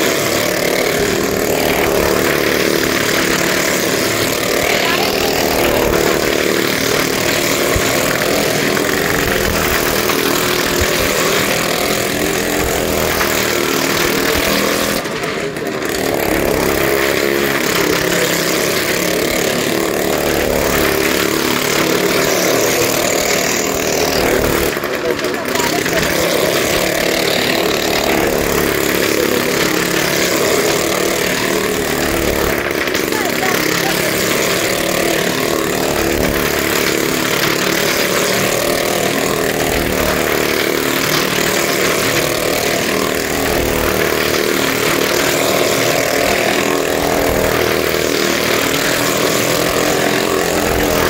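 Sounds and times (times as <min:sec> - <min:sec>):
motorcycle engine running hard: 0:00.0 - 0:51.0.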